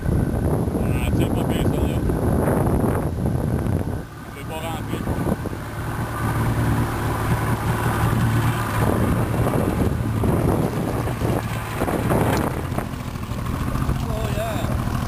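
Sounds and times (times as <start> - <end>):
wind on microphone: 0.0 - 13.8
boat motor droning: 0.0 - 15.0
water splashing against hull: 3.6 - 15.0.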